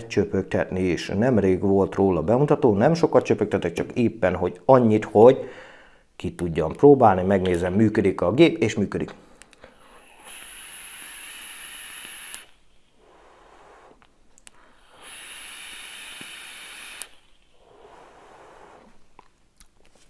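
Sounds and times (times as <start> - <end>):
breathy exhales: 9.6 - 19.1
vape draw hiss: 9.7 - 19.1.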